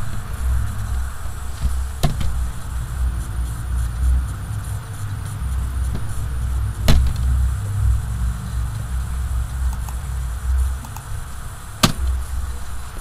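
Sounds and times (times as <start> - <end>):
low rumble: 0.0 - 12.9
sharp clicks: 9.7 - 10.0, 10.8 - 11.1.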